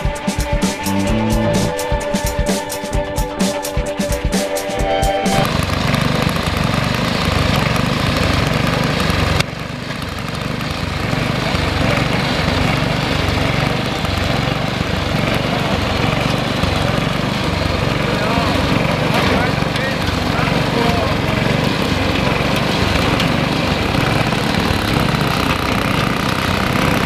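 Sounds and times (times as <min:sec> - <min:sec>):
tractor engine running under load: 0:00.8 - 0:01.9, 0:04.8 - 0:27.0
rotary tiller in dry soil: 0:05.4 - 0:27.0.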